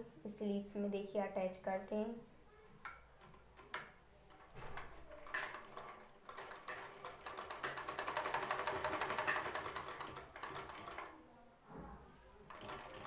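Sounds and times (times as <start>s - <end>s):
sewing machine stitching: 4.3s - 11.2s, 12.5s - 13.0s.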